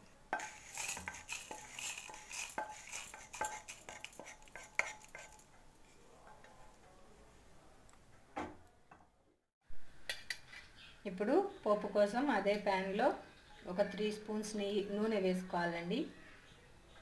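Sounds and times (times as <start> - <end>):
spatula scraping a pan: 0.4 - 6.0.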